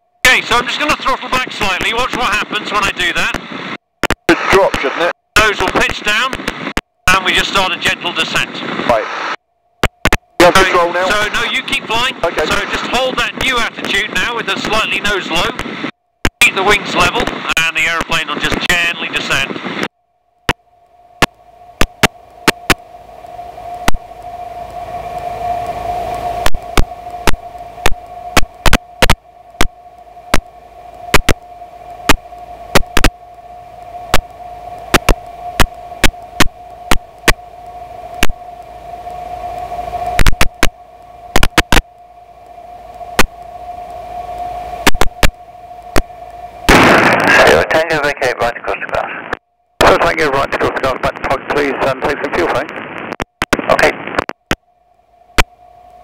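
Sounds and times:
aircraft engine hum: 0:00.1 - 0:56.0
electrical interference clicks: 0:00.8 - 0:07.4, 0:09.8 - 0:10.3, 0:21.2 - 0:24.1, 0:26.4 - 0:47.9, 0:48.6 - 0:54.6, 0:55.3 - 0:56.0.

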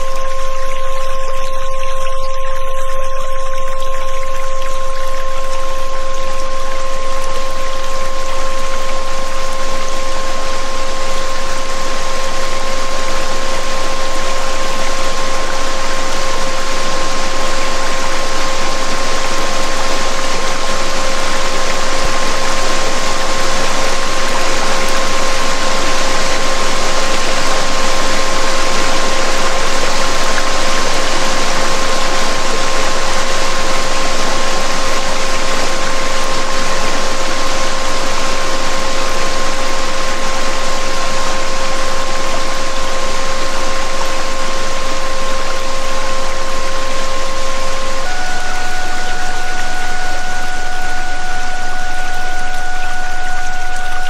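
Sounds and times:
higher pure tone: 0:00.0 - 0:54.0
steady pure tone: 0:00.0 - 0:54.0
waterfall rushing: 0:47.9 - 0:54.0.

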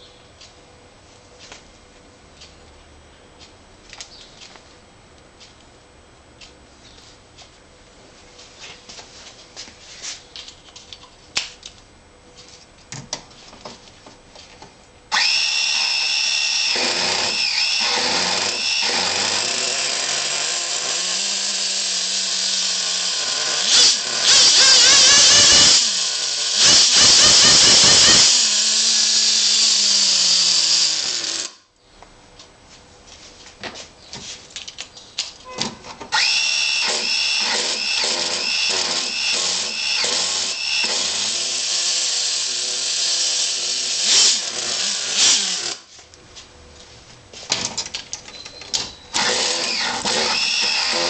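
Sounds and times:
model engine high buzzing whine: 0:15.1 - 0:31.6, 0:36.1 - 0:45.9, 0:48.9 - 0:51.0.

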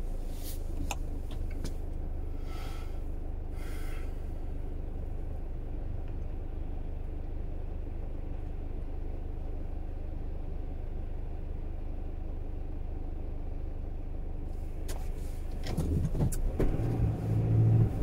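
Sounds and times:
car engine and road noise: 0:00.0 - 0:18.0
short hisses: 0:00.3 - 0:00.7, 0:02.4 - 0:03.0.

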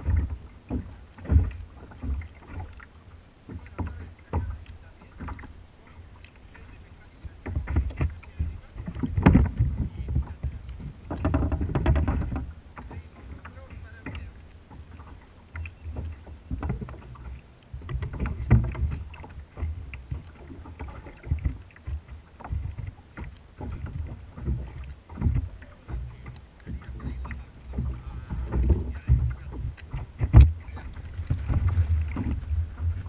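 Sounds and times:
low uneven rumble: 0:00.0 - 0:33.0
fishing tackle knocking and rustling: 0:08.8 - 0:14.2, 0:22.5 - 0:33.0.

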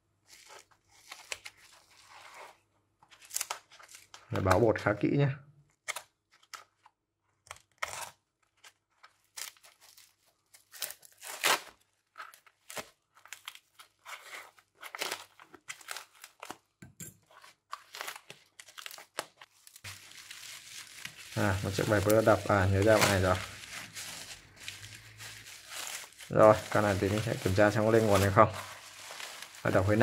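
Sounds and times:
packaging tearing and crinkling: 0:03.2 - 0:04.2, 0:07.5 - 0:30.0.

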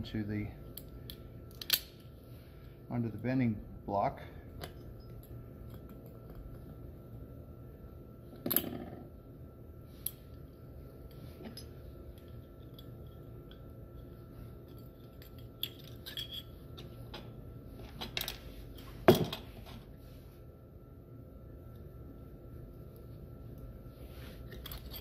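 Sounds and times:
metal parts clinking on workbench: 0:14.7 - 0:16.6, 0:24.5 - 0:25.0.

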